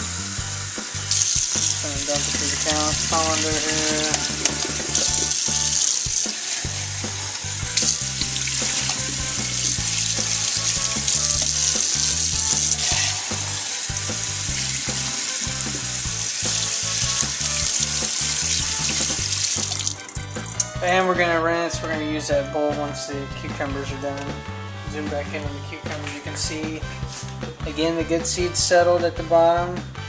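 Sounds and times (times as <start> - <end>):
tap water splashing through strainer: 1.1 - 20.7.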